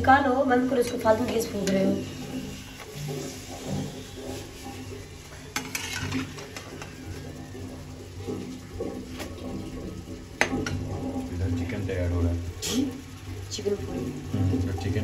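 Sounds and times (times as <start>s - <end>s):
oil sizzling: 0.0s - 15.0s
steel spatula scraping pan: 0.8s - 7.3s.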